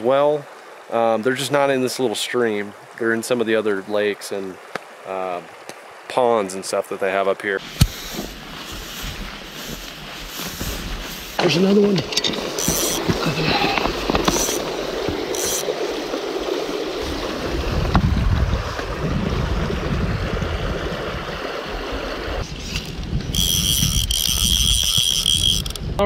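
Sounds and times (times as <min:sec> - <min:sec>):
footsteps on river cobbles: 0:07.6 - 0:19.7, 0:22.7 - 0:25.8
wind buffeting microphone: 0:07.7 - 0:26.0.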